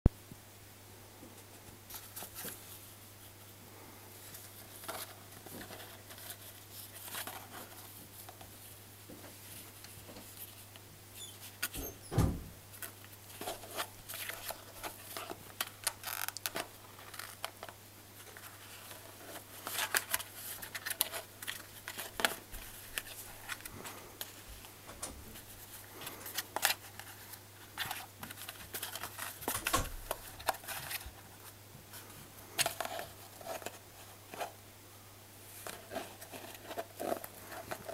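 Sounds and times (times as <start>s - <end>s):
thump: 12.1s - 12.5s.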